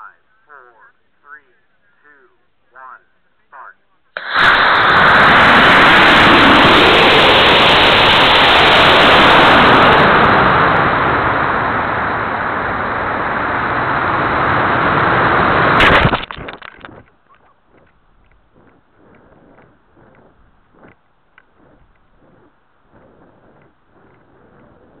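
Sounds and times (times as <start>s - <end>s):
sharp pop: 4.2s - 4.8s, 15.8s - 17.0s
model rocket motor thrust: 18.6s - 25.0s.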